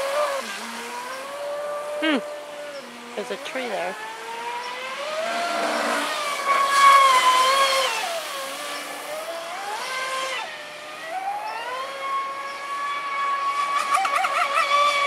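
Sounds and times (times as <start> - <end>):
electric motor whining: 0.0 - 15.0.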